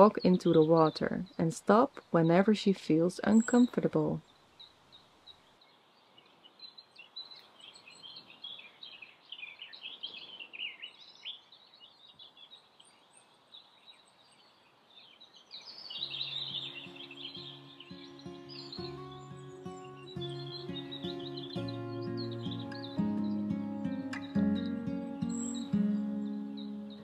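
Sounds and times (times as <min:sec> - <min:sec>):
faint outdoor background noise: 0:00.0 - 0:27.0
songbirds chirping and singing: 0:00.0 - 0:27.0
soft background music: 0:16.0 - 0:27.0.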